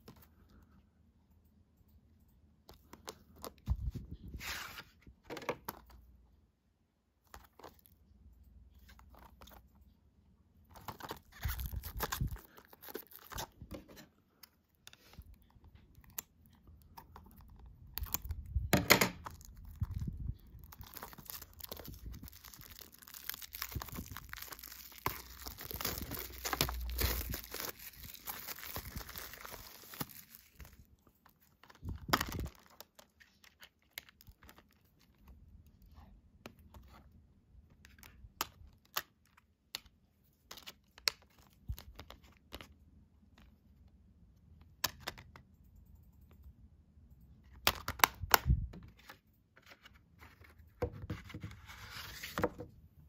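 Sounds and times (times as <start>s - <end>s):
plastic shrink wrap crinkling: 10.7s - 14.0s, 14.9s - 35.3s.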